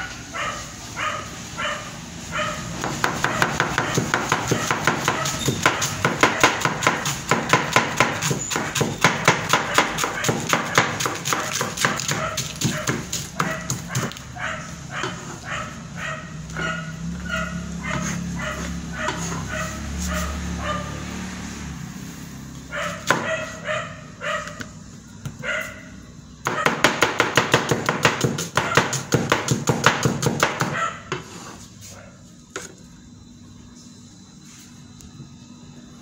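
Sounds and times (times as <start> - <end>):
cleaver chopping cabbage: 2.8 - 14.2, 26.5 - 30.8.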